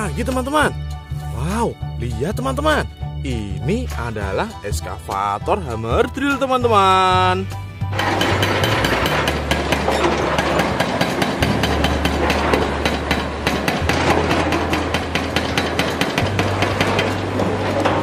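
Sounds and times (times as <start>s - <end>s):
diesel engine droning: 7.8s - 18.0s
hydraulic breaker hammering concrete: 7.9s - 18.0s.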